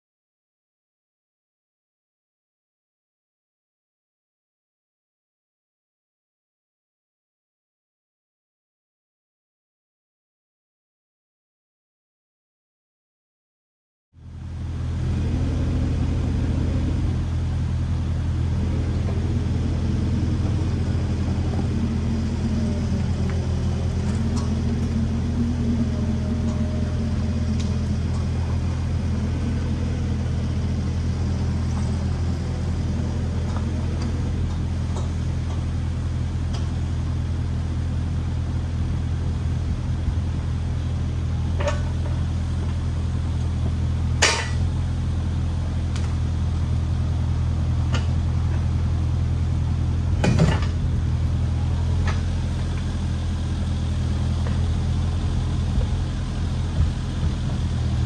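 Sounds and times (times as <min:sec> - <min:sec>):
excavator diesel engine running: 0:14.2 - 0:58.0.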